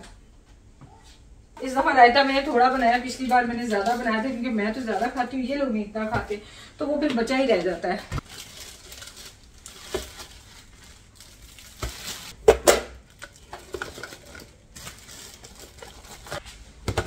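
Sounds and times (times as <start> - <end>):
plastic bags rustling: 2.2 - 6.1, 7.3 - 12.4, 13.0 - 16.7.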